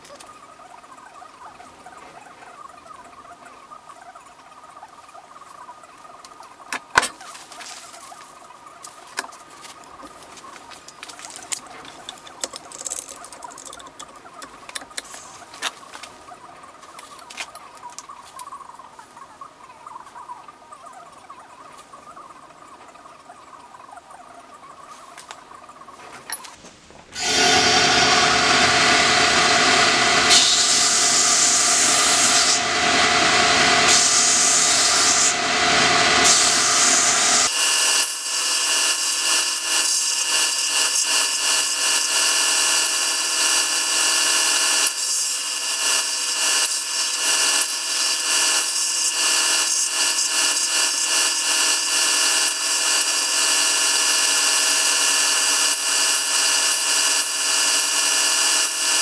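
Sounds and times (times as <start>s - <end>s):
belt grinder sanding wood: 9.2s - 16.0s, 26.4s - 59.0s.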